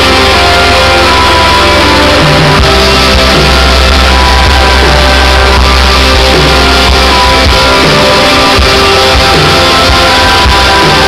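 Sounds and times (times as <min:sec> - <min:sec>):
rock band playing live: 0:00.0 - 0:11.0.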